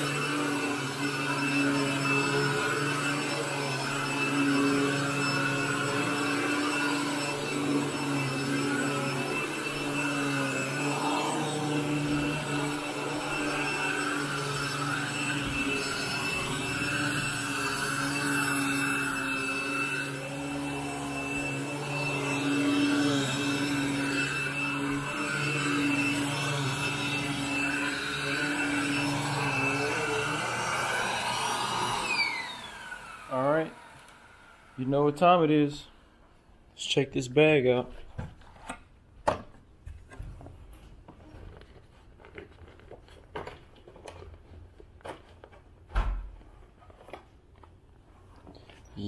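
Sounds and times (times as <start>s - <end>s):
vacuum cleaner on carpet: 0.0s - 35.8s.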